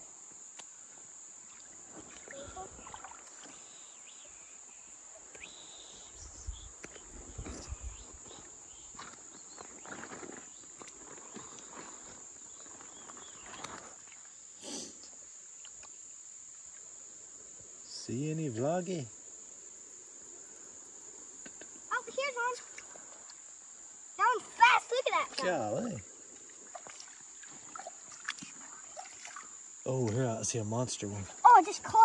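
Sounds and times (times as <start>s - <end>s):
high insect drone: 0.0s - 32.0s
feet wading through water: 1.5s - 3.8s, 26.3s - 29.6s.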